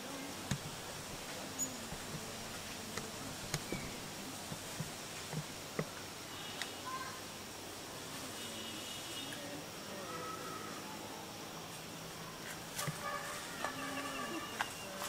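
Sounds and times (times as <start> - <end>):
steady forest hiss: 0.0 - 15.0.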